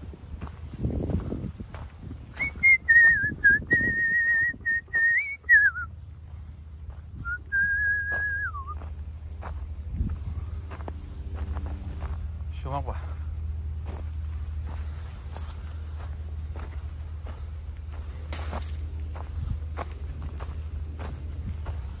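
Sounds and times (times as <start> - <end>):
person whistling a tune: 2.3 - 5.9, 7.2 - 8.8.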